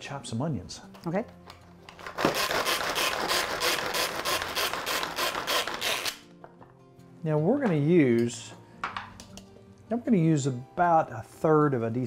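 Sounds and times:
pull-cord food chopper whirring: 2.0 - 6.2.

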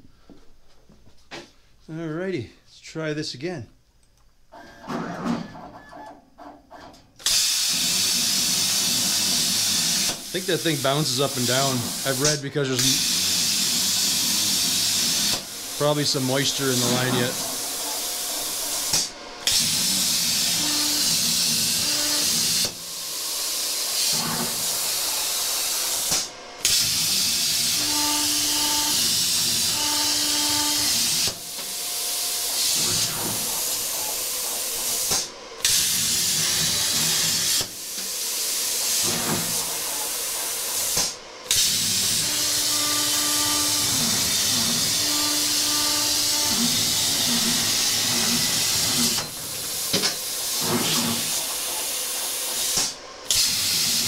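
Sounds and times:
plasma cutter hissing: 7.2 - 54.0.

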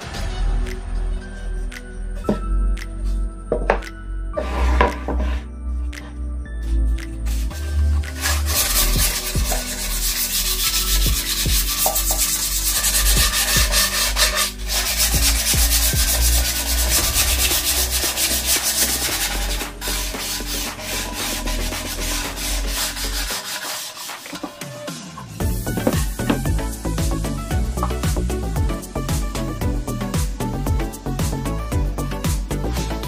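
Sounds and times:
wood rasping on sandpaper: 7.3 - 24.8.

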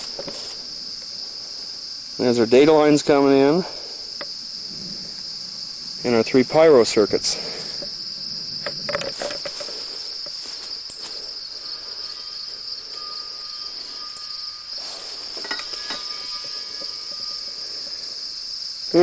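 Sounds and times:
insects chirring in grass: 0.0 - 19.0
handling clicks and rustles: 8.6 - 11.2.

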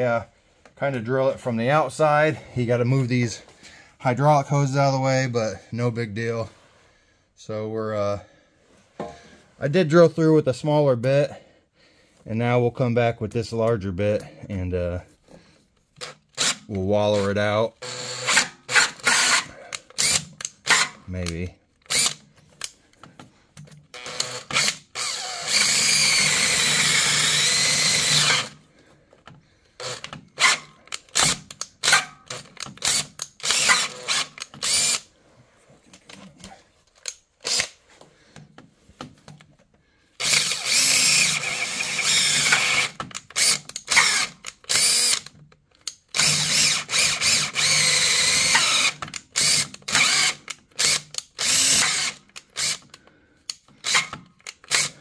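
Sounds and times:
cordless drill boring through metal: 16.0 - 21.0, 21.9 - 22.3, 23.9 - 28.6, 29.8 - 35.1, 37.4 - 37.8, 40.2 - 55.0.

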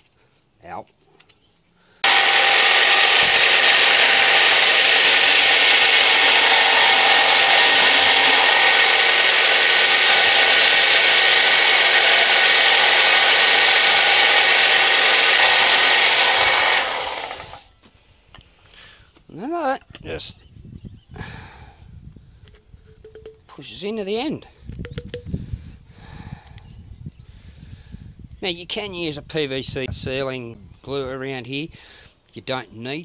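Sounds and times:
pipe sanding on abrasive belt: 2.0 - 17.6
belt sander running: 2.0 - 17.7.

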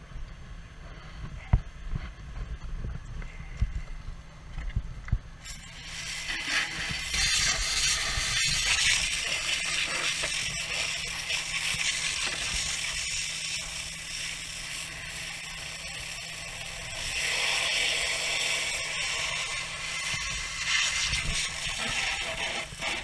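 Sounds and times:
burning debris crackling: 5.4 - 23.0.

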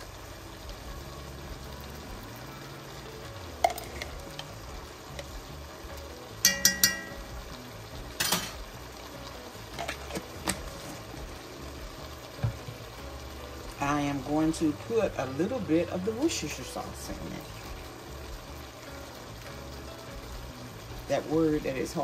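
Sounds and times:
soup sizzling in a pot: 0.0 - 22.0
metal spoon clinking against pot: 6.4 - 7.2.

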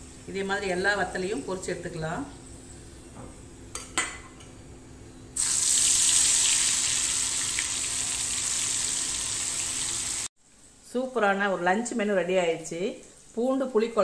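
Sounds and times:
food sizzling in hot oil: 5.4 - 10.3.

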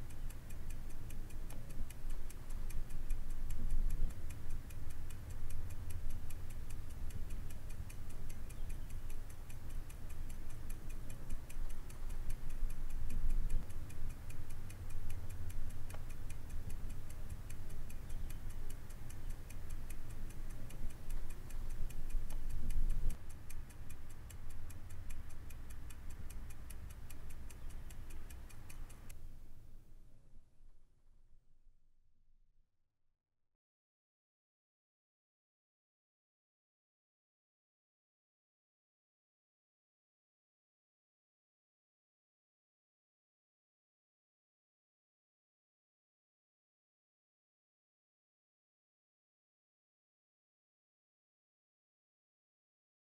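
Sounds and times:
clock ticking: 0.0 - 29.2
steady low rumble: 0.0 - 30.5.

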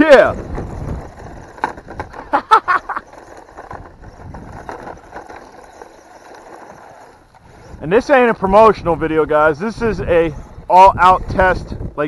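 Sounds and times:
toy truck clattering over stones: 0.0 - 8.8
toy truck motor and tyres: 0.0 - 12.0.

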